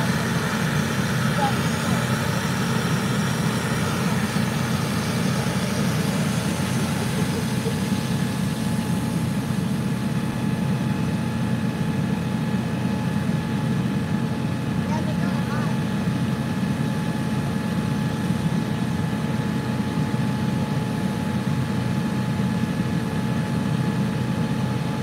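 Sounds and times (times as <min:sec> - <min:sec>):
faint steady whine: 0:00.0 - 0:11.9
diesel engine rumble: 0:00.0 - 0:12.6.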